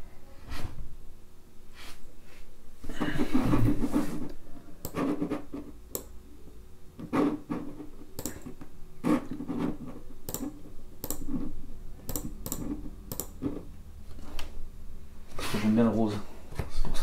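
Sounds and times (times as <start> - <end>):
person rustling at desk: 1.7 - 5.8, 7.0 - 11.6
mouse and keyboard clicks: 8.2 - 8.6, 10.3 - 11.4, 12.1 - 13.5.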